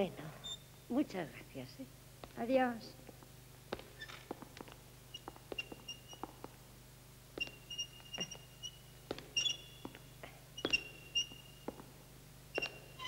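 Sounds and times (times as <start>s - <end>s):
boot squeaking: 0.4s - 0.8s, 3.1s - 6.7s, 7.3s - 13.0s
slow footsteps: 2.1s - 13.0s.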